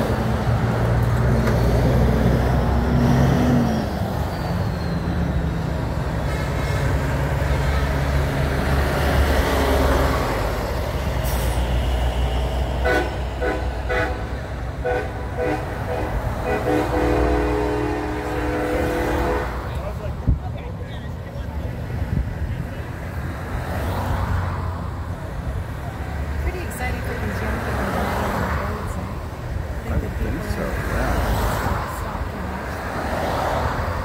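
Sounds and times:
diesel truck engines droning: 0.0 - 34.0
horn short blasts: 12.8 - 19.7.

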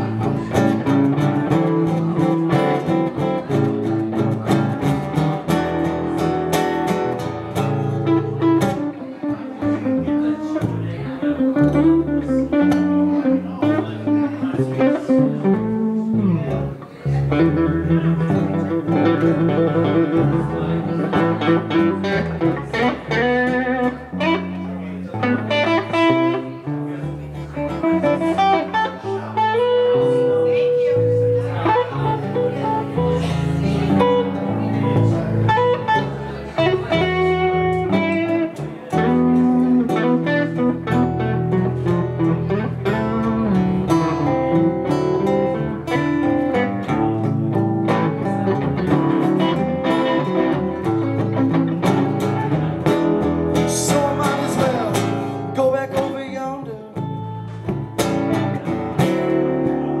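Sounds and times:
live band playing a song: 27.6 - 56.2, 57.0 - 60.0.

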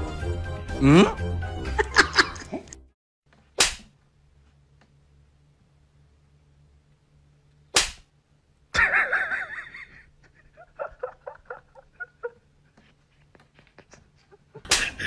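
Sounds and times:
sharp slap: 3.6 - 4.0, 7.7 - 8.1, 14.6 - 15.0.

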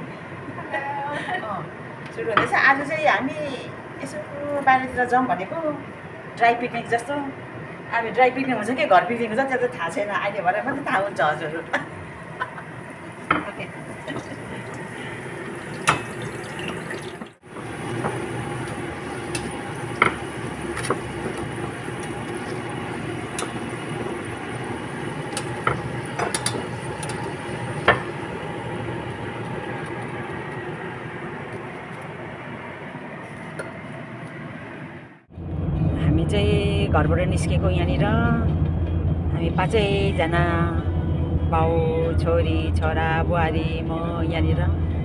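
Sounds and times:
bread sizzling in hot oil: 12.5 - 30.6.

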